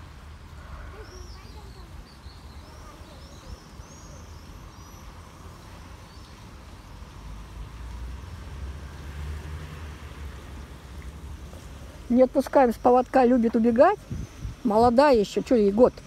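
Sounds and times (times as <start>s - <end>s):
road traffic rumble: 0.0s - 16.0s
faint bird chirps: 0.6s - 5.2s
vehicle passing: 4.2s - 16.0s.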